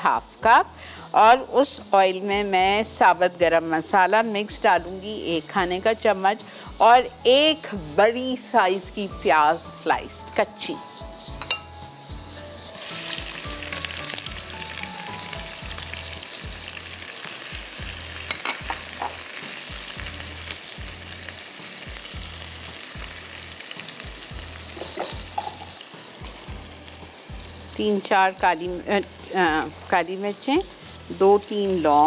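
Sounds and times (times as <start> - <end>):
onion sizzling in hot oil: 0.0 - 32.0
spoon stirring: 10.4 - 16.3, 24.6 - 26.5
spoon tapping on pan: 11.4 - 11.7.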